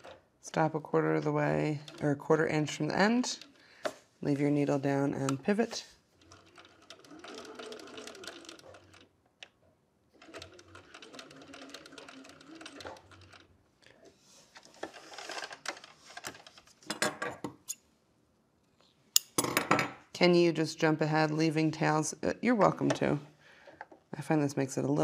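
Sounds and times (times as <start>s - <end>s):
sewing machine stitching: 0.0s - 0.2s, 1.1s - 3.6s, 4.3s - 9.1s, 10.1s - 13.6s.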